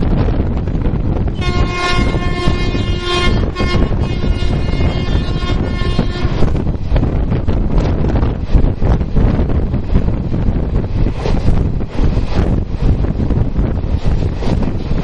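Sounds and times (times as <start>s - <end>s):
moving train rumble: 0.0s - 15.0s
wind on microphone: 0.0s - 15.0s
train horn blast: 1.4s - 6.6s.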